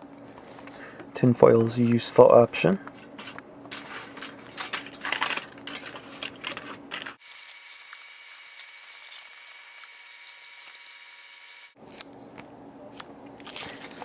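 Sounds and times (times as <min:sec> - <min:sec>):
aluminium foil crinkling: 0:03.2 - 0:12.2, 0:12.9 - 0:14.0.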